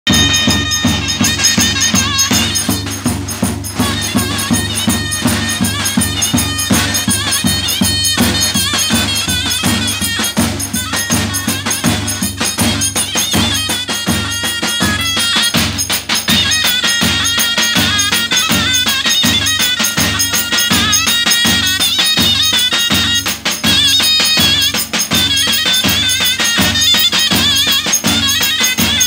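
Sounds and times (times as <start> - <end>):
bass drums beating: 0.1 - 14.2
zurna folk melody: 0.1 - 29.0.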